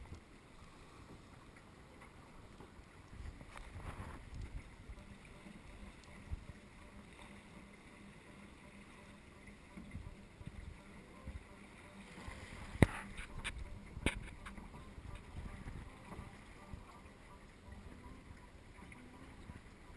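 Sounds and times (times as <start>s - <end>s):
water rushing along hull: 0.0s - 19.9s
wind on microphone: 3.1s - 5.1s, 12.2s - 17.0s.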